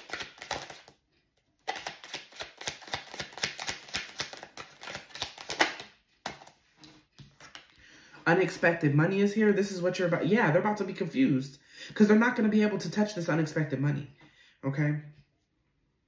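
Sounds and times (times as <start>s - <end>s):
cards being shuffled: 0.0s - 1.0s, 1.6s - 7.8s.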